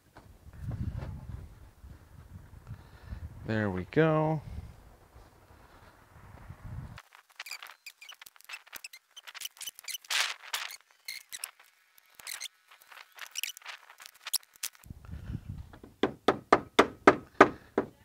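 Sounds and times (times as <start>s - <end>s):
loud knocks: 15.8s - 17.9s.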